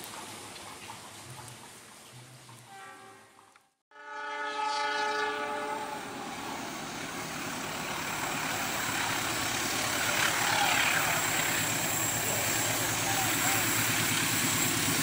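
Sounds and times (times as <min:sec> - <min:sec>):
diesel locomotive horn blast: 0:02.6 - 0:06.7
train rumbling on rails: 0:04.2 - 0:15.0.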